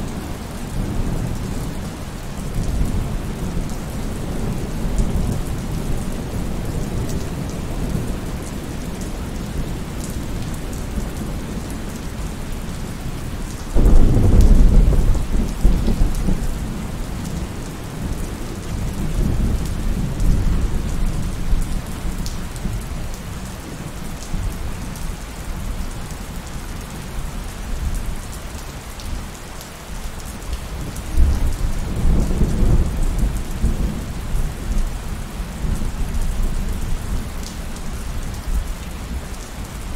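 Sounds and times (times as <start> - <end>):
heavy rain: 0.0 - 39.9
thunder rumbling: 13.8 - 18.2.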